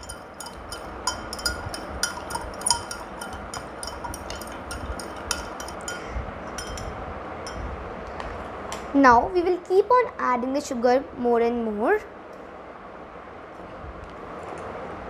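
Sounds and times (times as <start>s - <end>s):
spoon clinking against glass: 0.0s - 6.9s.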